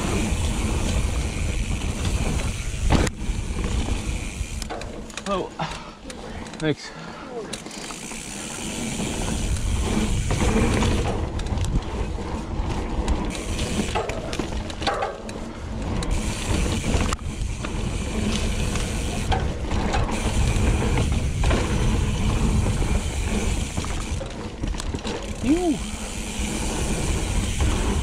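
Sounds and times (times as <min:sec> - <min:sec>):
bicycle freehub buzzing: 0:00.0 - 0:06.4, 0:07.0 - 0:28.0
bike rolling on dirt trail: 0:00.0 - 0:28.0.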